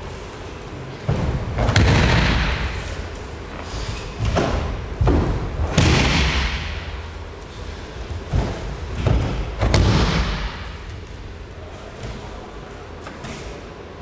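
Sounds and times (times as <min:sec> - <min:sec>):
heavy thuds on judo mats: 0:01.0 - 0:03.2, 0:03.9 - 0:07.2, 0:08.0 - 0:11.0.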